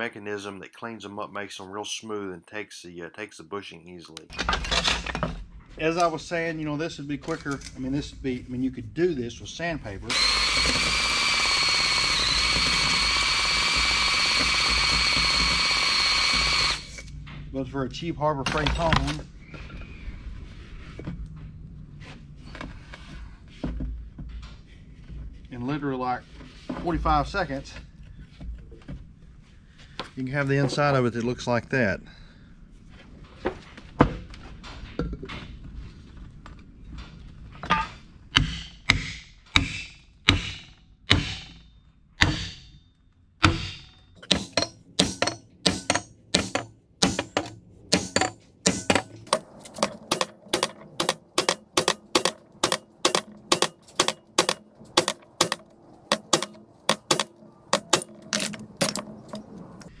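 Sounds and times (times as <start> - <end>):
hammer striking metal: 37.7 - 42.8, 43.4 - 59.6.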